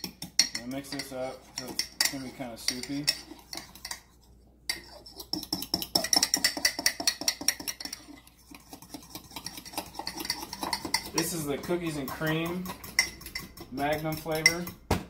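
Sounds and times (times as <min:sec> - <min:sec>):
fork clinking against mug: 0:00.0 - 0:04.1, 0:04.7 - 0:14.8.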